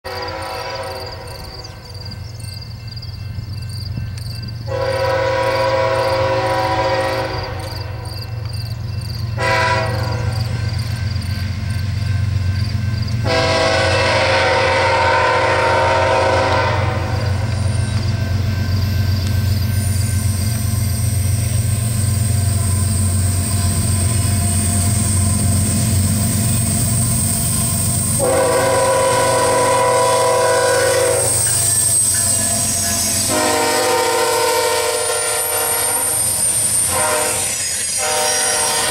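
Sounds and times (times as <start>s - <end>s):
locomotive air horn blasts: 0.0s - 1.6s, 4.7s - 8.1s, 9.4s - 10.7s, 13.2s - 17.6s, 28.1s - 38.9s
diesel locomotive rumble: 0.1s - 38.9s.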